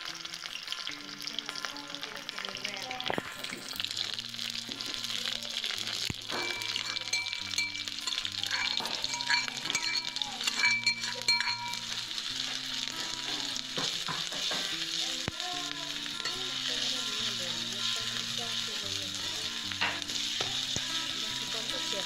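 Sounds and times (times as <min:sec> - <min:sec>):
onions sizzling in hot oil: 0:00.0 - 0:22.0
metal ladle scraping pan: 0:06.0 - 0:14.8.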